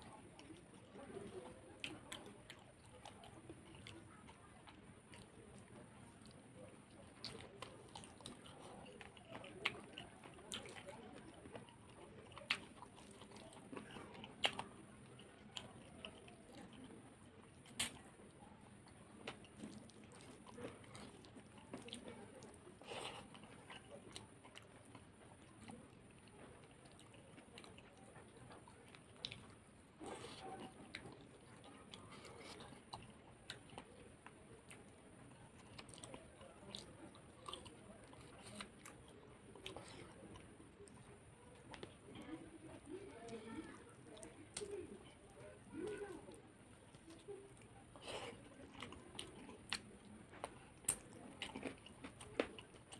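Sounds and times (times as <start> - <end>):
person chewing food: 0.0 - 52.9
man chewing and biting: 35.7 - 40.5, 46.9 - 52.9.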